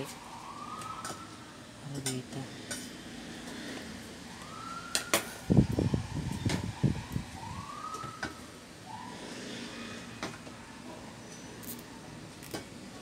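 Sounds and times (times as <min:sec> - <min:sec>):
distant siren wailing: 0:00.0 - 0:01.8, 0:04.2 - 0:11.2.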